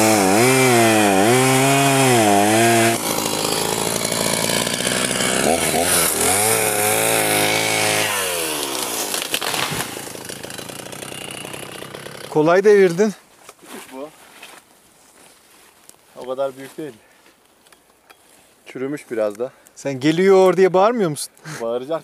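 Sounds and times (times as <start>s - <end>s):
chainsaw cutting tree: 0.0s - 12.8s.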